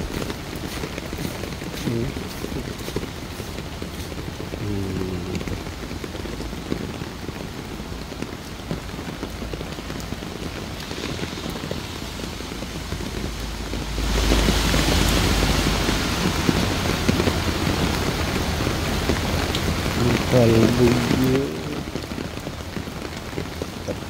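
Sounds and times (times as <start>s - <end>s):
heavy rain falling onto water: 0.0s - 24.0s.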